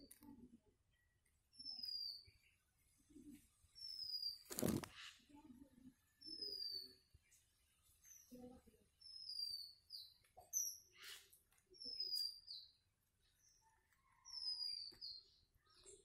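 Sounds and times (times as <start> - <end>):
bird singing whistled notes: 1.6 - 2.4, 3.8 - 4.5, 6.2 - 7.1, 9.0 - 10.9, 11.8 - 12.8.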